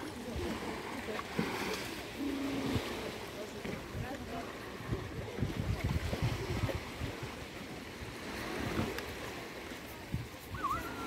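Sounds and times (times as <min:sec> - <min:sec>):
waves washing on pebble shore: 0:00.0 - 0:11.0
wind buffeting microphone: 0:03.7 - 0:11.0.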